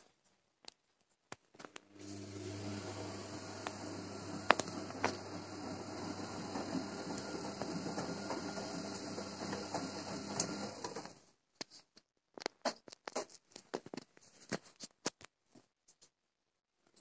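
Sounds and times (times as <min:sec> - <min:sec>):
washing machine drum motor: 0:02.0 - 0:11.2.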